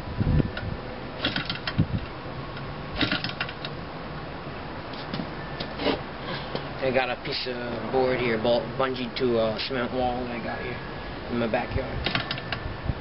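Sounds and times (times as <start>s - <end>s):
model engine clicking turning over: 1.2s - 1.8s, 3.0s - 3.7s, 12.0s - 12.6s.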